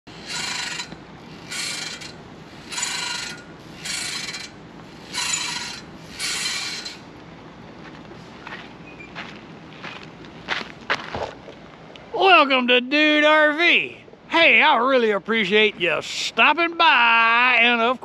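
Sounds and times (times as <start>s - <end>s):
swing creaking: 0.1s - 12.6s.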